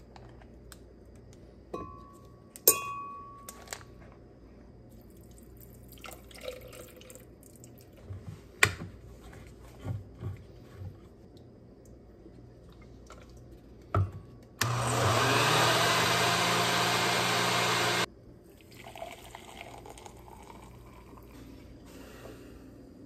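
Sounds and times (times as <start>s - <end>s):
coffee pouring into mug: 5.1s - 7.9s, 18.6s - 21.5s
blender motor running: 14.6s - 18.1s.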